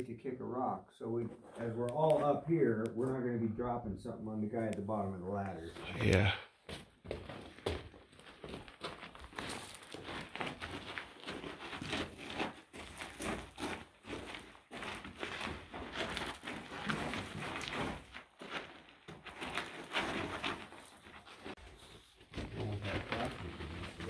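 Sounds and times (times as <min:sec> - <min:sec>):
footsteps on gravel: 0:07.0 - 0:21.6
clothing and gear rustling: 0:07.5 - 0:22.3.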